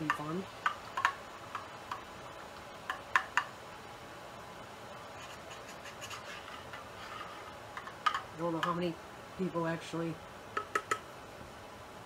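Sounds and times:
kettle ticking while heating: 0.0s - 3.5s
faint steady hiss: 0.0s - 12.0s.

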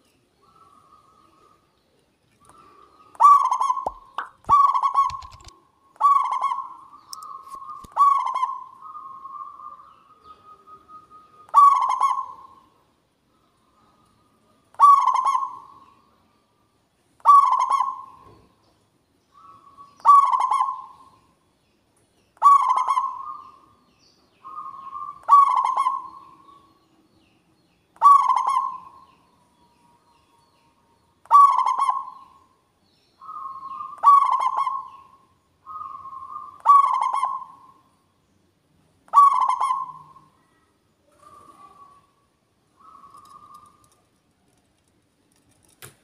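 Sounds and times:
dove cooing: 2.5s - 12.7s, 14.7s - 15.8s, 17.2s - 18.4s, 19.4s - 21.2s, 22.4s - 23.7s, 24.4s - 26.6s, 28.0s - 29.1s, 31.2s - 32.4s, 33.2s - 37.8s, 39.1s - 40.5s, 41.1s - 42.1s, 42.8s - 44.0s.

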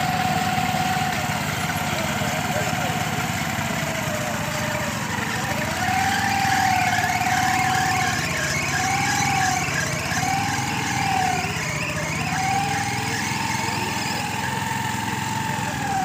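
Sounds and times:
small engine running: 0.0s - 16.0s
wavering siren-like tone: 3.9s - 16.0s.

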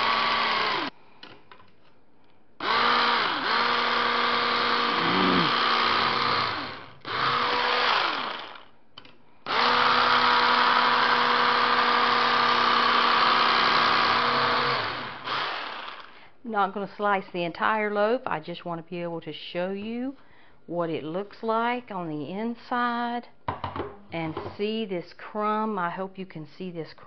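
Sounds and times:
electric knife motor hum: 0.0s - 0.9s, 2.6s - 8.6s, 9.5s - 16.1s.

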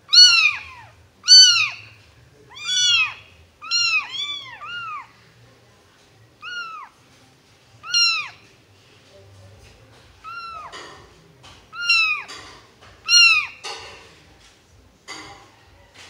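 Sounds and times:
kittens meowing: 0.1s - 5.1s, 6.4s - 7.0s, 7.8s - 8.4s, 10.2s - 10.9s, 11.7s - 12.4s, 13.0s - 13.6s.

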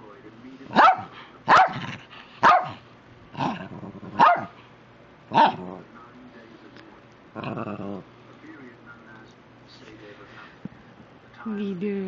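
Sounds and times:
small dog barking: 0.7s - 1.8s, 2.4s - 2.8s, 4.2s - 4.6s, 5.3s - 5.6s.

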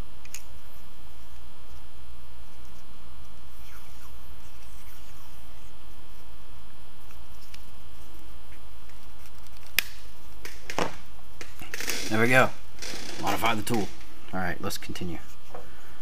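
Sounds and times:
steady low hum: 0.0s - 16.0s
electrical tape handling: 8.8s - 12.0s.

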